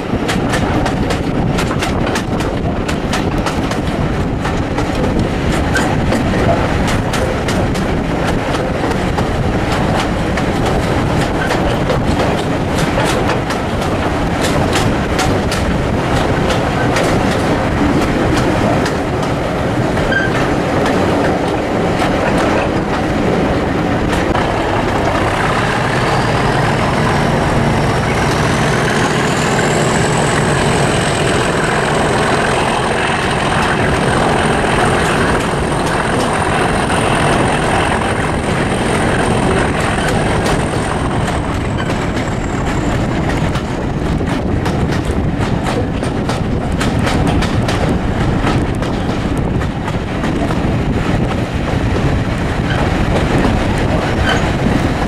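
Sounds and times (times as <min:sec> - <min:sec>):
train rumble: 0:00.0 - 0:55.0
train wheels clicking over rail joints: 0:00.0 - 0:55.0
high whine of wheels squealing: 0:25.4 - 0:32.7.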